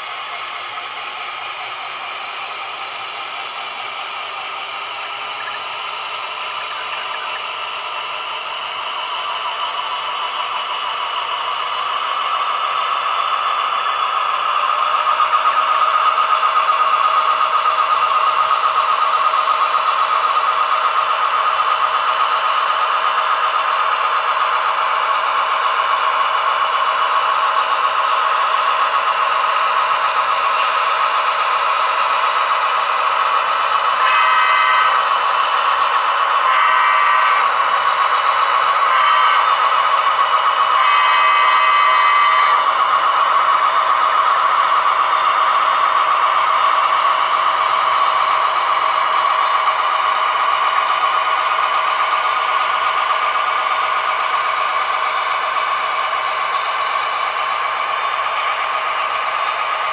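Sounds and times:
model train motor whir: 0.0s - 59.9s.

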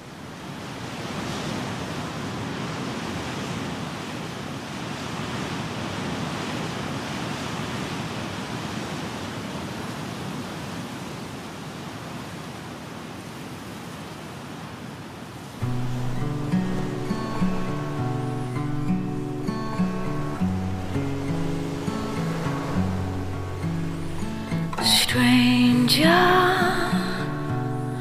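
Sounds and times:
steady rushing noise: 15.5s - 28.0s.

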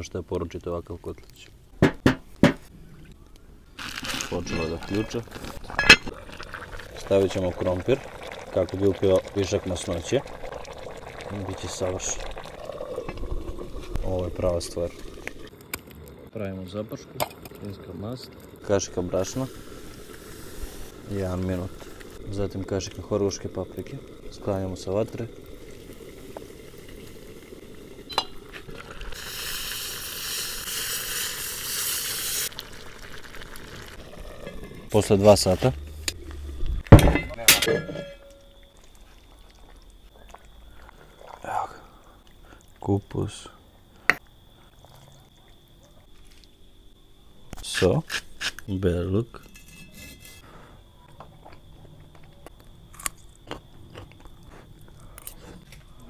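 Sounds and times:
roux sizzling into boiling stew: 3.8s - 41.4s, 49.4s - 50.7s
person chewing food: 51.4s - 56.0s.

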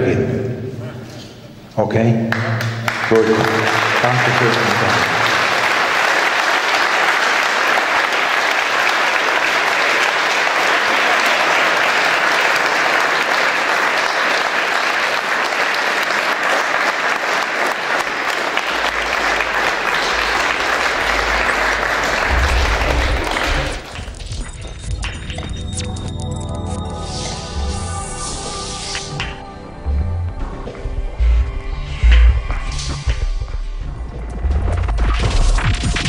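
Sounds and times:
crowd applauding: 2.3s - 25.5s
low thumps: 18.8s - 25.6s, 29.8s - 35.6s.

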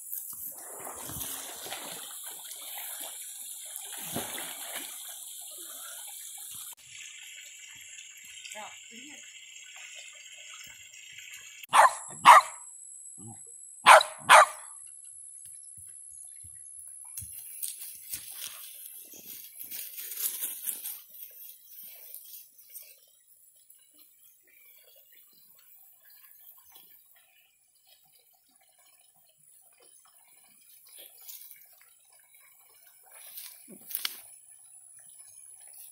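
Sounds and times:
dog barking: 11.7s - 12.6s, 13.9s - 14.8s.

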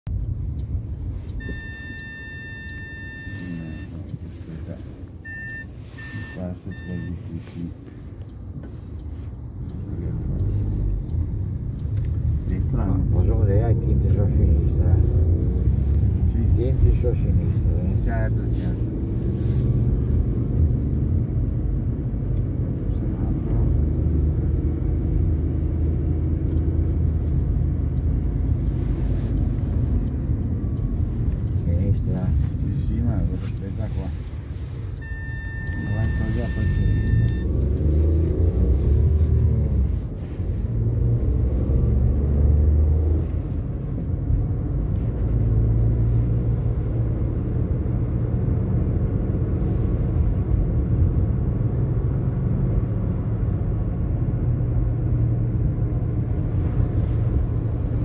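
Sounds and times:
car cabin rumble: 0.1s - 58.0s
high electronic beep: 1.4s - 4.0s, 5.3s - 7.2s, 35.0s - 37.5s.

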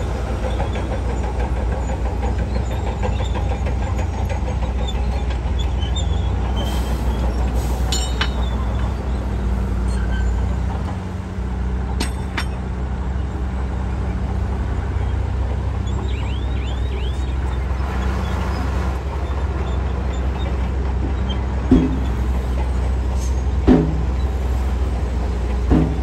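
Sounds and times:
diesel truck engines rumbling: 0.0s - 26.0s
sharp knocks: 21.7s - 22.4s, 23.6s - 24.2s, 25.6s - 26.0s.

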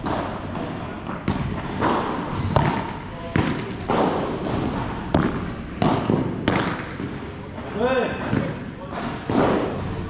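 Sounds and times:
racket hitting ball: 0.0s - 7.6s
ball bouncing on court: 0.0s - 9.9s.

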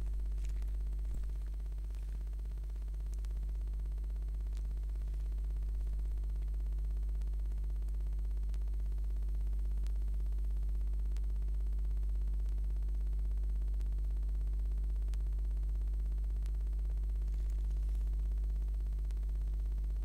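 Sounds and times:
faint clicks: 0.0s - 3.4s
steady low hum: 0.0s - 20.0s.

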